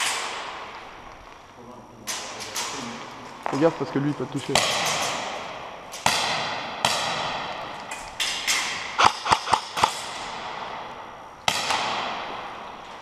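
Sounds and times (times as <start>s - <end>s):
airsoft gun shots echoing: 4.5s - 12.9s.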